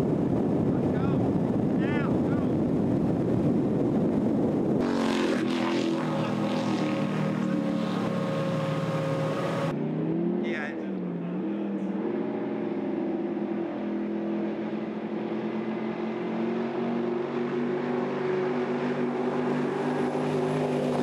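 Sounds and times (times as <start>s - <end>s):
powerboat engines droning: 4.8s - 9.7s, 10.3s - 21.0s
rushing water noise: 4.8s - 9.7s, 15.6s - 21.0s.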